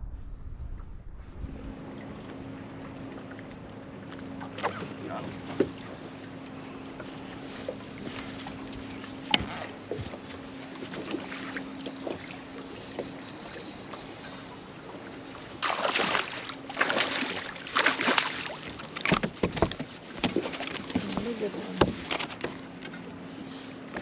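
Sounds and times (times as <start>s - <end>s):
electric trolling motor humming: 1.5s - 15.6s.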